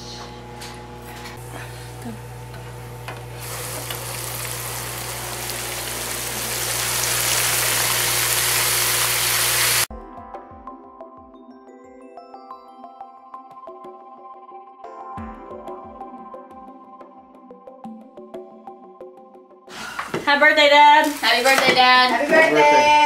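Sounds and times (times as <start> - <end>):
deep fryer oil sizzling: 3.0 - 9.9.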